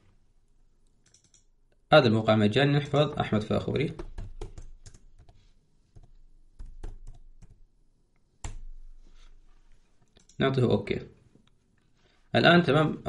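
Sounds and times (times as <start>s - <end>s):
computer keyboard keystrokes: 1.0s - 1.5s, 3.9s - 5.4s, 6.0s - 7.6s.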